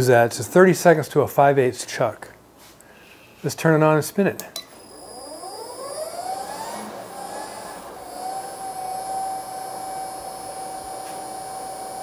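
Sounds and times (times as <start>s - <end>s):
drill press motor whining: 4.8s - 12.0s.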